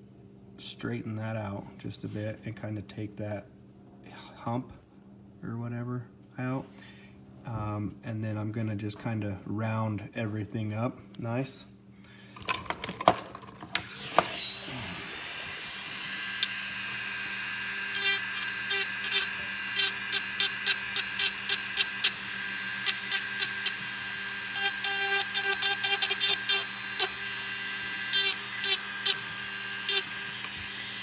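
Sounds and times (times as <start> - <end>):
rotary tool grinding metal: 13.7 - 31.0
rotary tool whine: 13.7 - 31.0.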